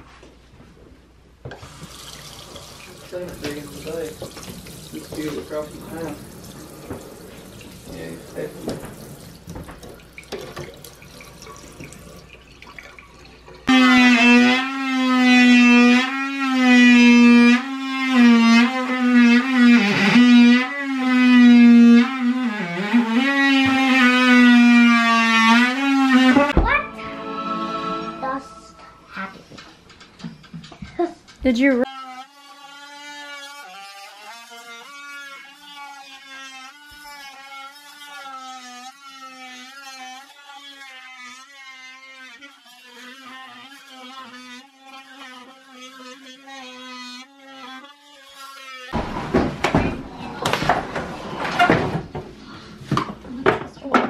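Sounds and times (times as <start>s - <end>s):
oscillating multi-tool cutting wood: 13.6s - 26.6s, 31.8s - 49.0s
music with long held note: 26.6s - 29.3s.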